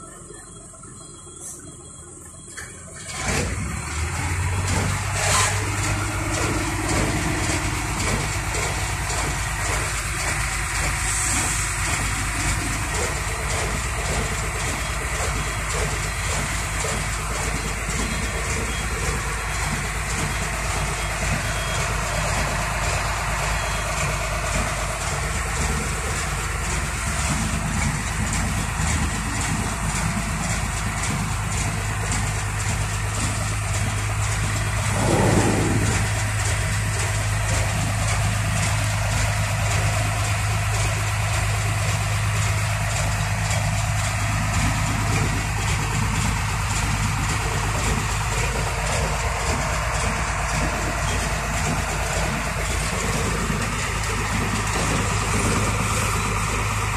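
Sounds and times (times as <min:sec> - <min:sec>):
diesel engine idling: 0:00.0 - 0:56.9
steady low hum: 0:33.2 - 0:38.2
short sound sliding down in pitch: 0:34.8 - 0:36.5.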